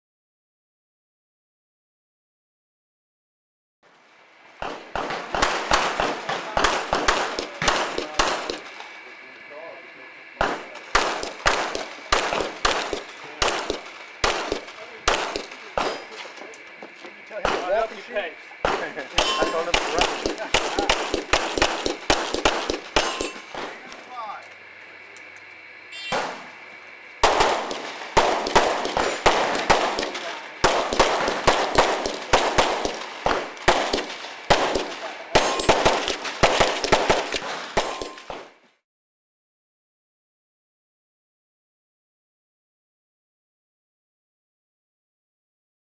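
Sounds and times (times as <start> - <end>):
pistol shots echoing: 4.6 - 8.7, 10.4 - 16.2, 18.6 - 23.8, 26.1 - 26.5, 27.2 - 38.4.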